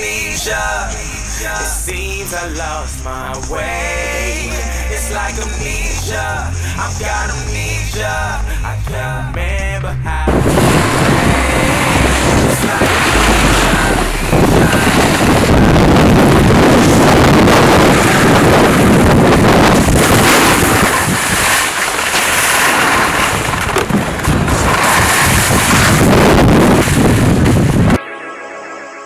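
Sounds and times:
snowboard sliding over snow: 10.3s - 28.0s
wind rushing over microphone: 10.3s - 28.0s.

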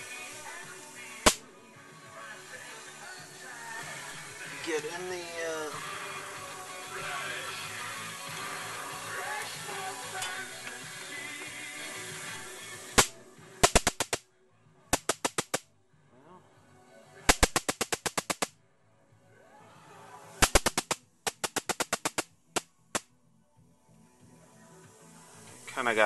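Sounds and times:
high-voltage arcing cracks: 0.0s - 1.4s, 12.9s - 14.2s, 15.0s - 15.6s, 17.3s - 18.5s, 20.4s - 22.3s.

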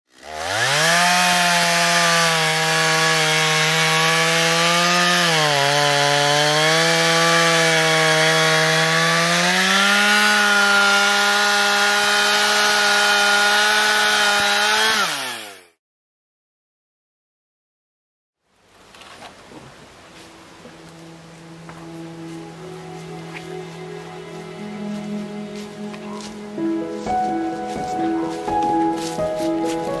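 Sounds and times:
chainsaw cutting log: 0.1s - 15.8s.

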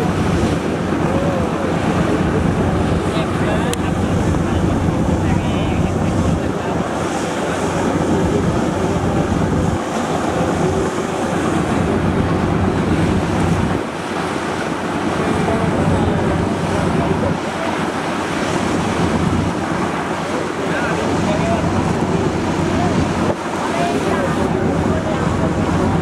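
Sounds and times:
water rushing and splashing: 0.0s - 26.0s
wind buffeting microphone: 0.0s - 26.0s.

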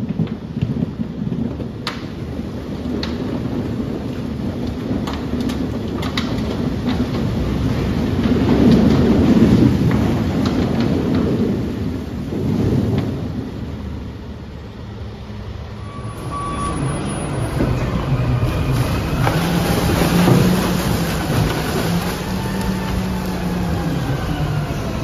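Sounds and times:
truck engine humming: 14.0s - 25.0s
garbage sliding into pit: 15.8s - 25.0s
bagged garbage tipping out: 17.3s - 25.0s.

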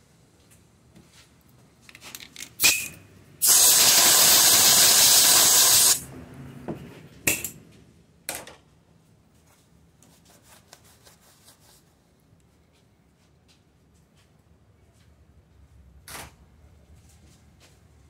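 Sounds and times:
compressed air blow gun hissing: 3.4s - 6.0s.

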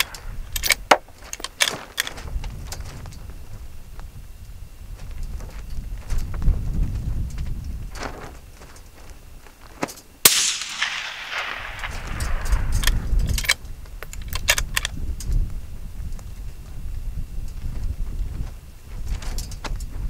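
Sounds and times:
rifle shot with echo: 10.2s - 13.5s
sharp clicks: 10.3s - 15.0s.

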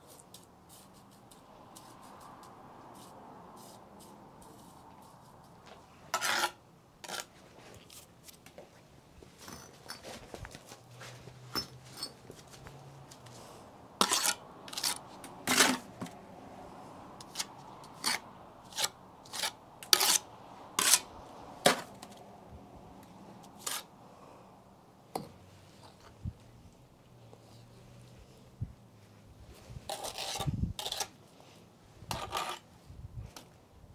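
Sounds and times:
trowel clacking and scraping on brick: 6.1s - 7.3s, 14.0s - 16.1s, 17.2s - 20.2s, 20.8s - 22.2s, 23.6s - 23.9s, 29.9s - 31.2s, 32.1s - 32.7s.

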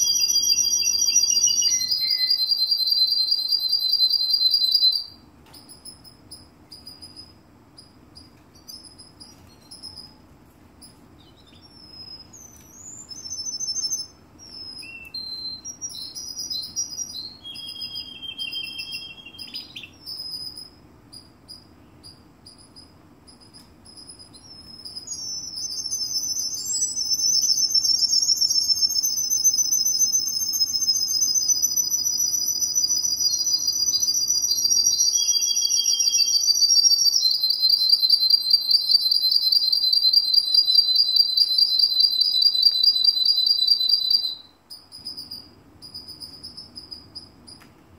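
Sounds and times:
canary chirping and trilling: 0.0s - 47.6s.

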